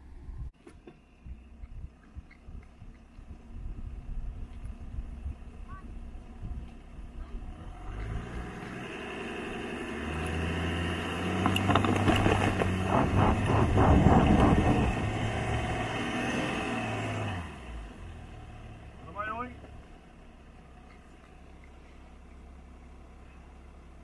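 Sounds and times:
engine revving under load: 7.3s - 20.0s
tyres churning sand: 8.0s - 17.6s.

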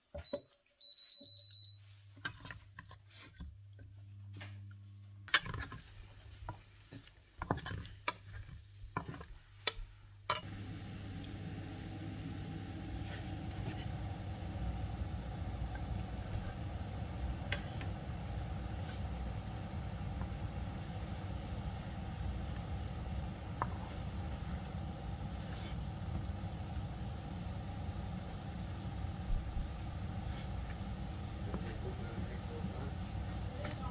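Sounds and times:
low hum with hiss: 10.0s - 33.9s
spatula scraping frying pan: 12.9s - 14.2s.

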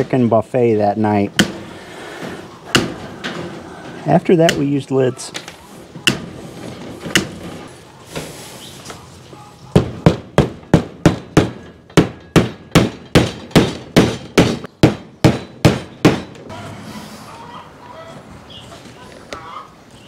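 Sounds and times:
hammer driving nails: 1.3s - 3.4s, 7.0s - 7.5s, 9.8s - 16.5s.

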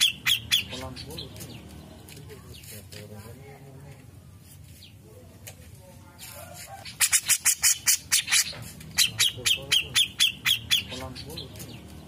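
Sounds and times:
bulbul calling: 0.0s - 2.7s, 6.8s - 12.0s.

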